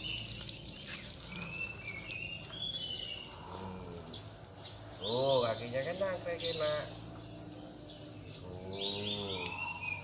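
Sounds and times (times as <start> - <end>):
garden hose spraying water: 0.0 - 10.0
lovebirds chirping: 0.0 - 10.0.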